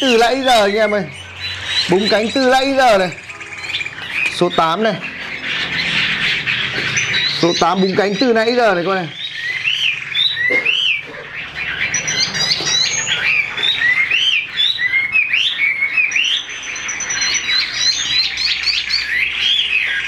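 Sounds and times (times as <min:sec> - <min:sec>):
bird singing whistled notes: 0:00.0 - 0:05.1, 0:06.9 - 0:20.0.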